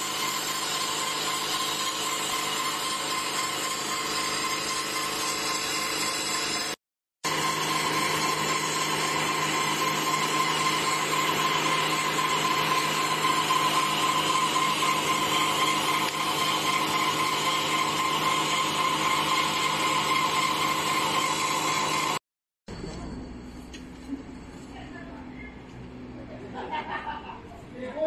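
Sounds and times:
cnc machine cutting cardboard: 0.0 - 22.2.

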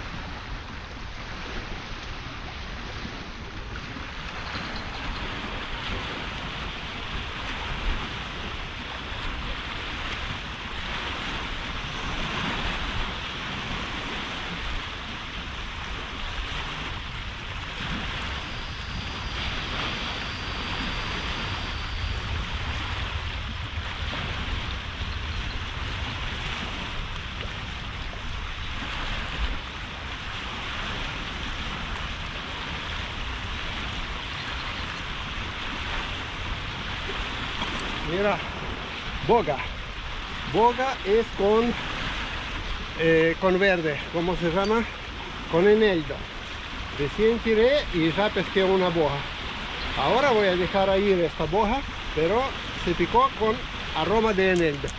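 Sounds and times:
small waves washing: 0.0 - 54.9
wind on microphone: 0.0 - 54.9
low rumble: 16.9 - 30.3.

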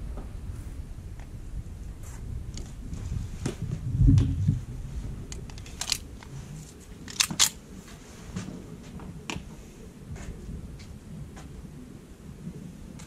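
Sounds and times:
pistol metallic clicks: 7.1 - 7.6.

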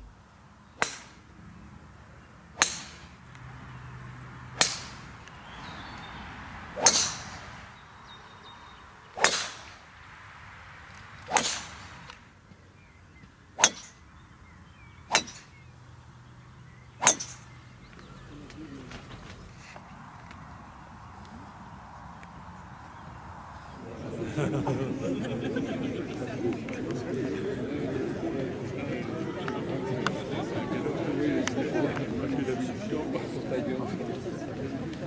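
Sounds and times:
golf club striking ball: 0.8 - 1.2, 2.6 - 3.4, 4.5 - 6.2, 6.8 - 7.5, 9.2 - 9.8, 11.2 - 12.2, 13.6 - 14.2, 15.0 - 15.7, 16.7 - 18.1.

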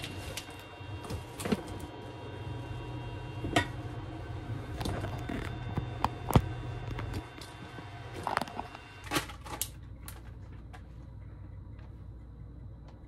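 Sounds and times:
plastic egg pack crackling: 0.0 - 2.1
faint steady hum: 0.0 - 13.0.

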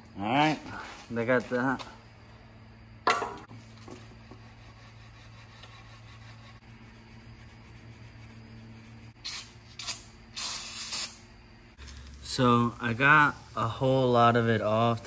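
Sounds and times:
steady low hum: 0.0 - 15.0
aerosol spray hiss: 9.2 - 11.2.

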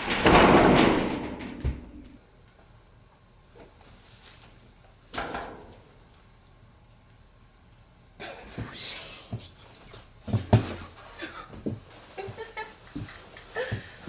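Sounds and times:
rustling: 3.6 - 4.7.

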